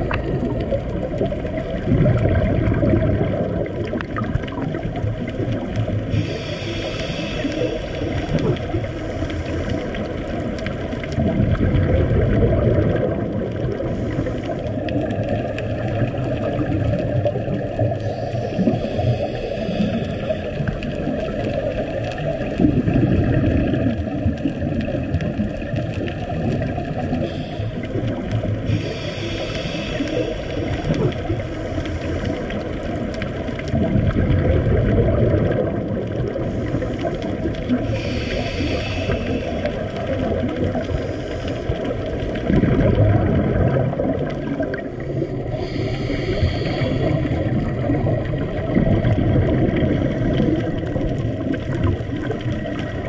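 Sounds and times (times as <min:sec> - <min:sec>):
bubbling of exhaled air: 0:00.0 - 0:53.0
hissing regulator inhales: 0:06.1 - 0:09.9, 0:18.0 - 0:20.6, 0:27.1 - 0:27.9, 0:28.6 - 0:30.9, 0:37.8 - 0:40.0, 0:40.8 - 0:41.9, 0:45.2 - 0:47.5.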